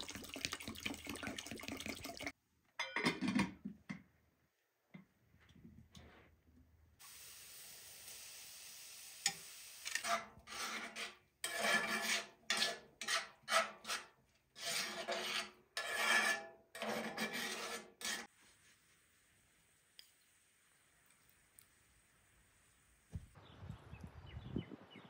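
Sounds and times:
onions sizzling in a frying pan: 7.0 - 9.9
metal skimmer scraping a pan: 9.9 - 18.3.

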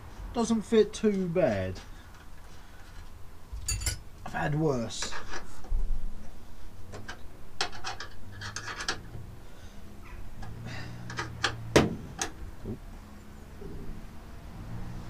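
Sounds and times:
metal clicks and scrapes: 4.9 - 5.7, 6.9 - 9.3.

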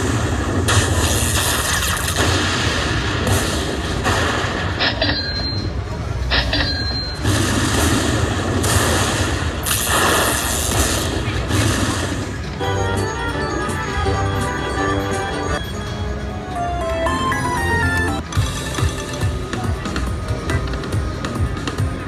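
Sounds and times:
slot machine lightning crashes: 0.0 - 5.7, 6.3 - 13.4
short beeps: 5.0 - 5.7, 6.3 - 7.2.

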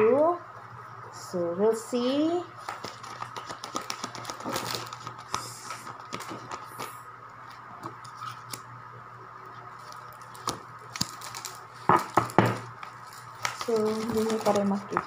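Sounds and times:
faint steady hum: 0.0 - 15.0
cards being shuffled: 2.6 - 8.7, 9.8 - 15.0.

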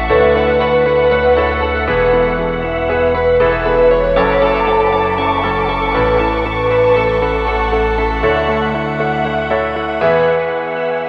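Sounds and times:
music of sustained chords: 0.0 - 11.0.

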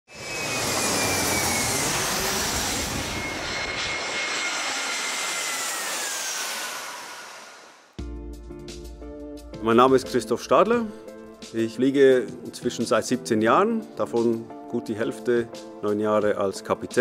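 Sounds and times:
jet airliner engine rush: 0.1 - 8.0.

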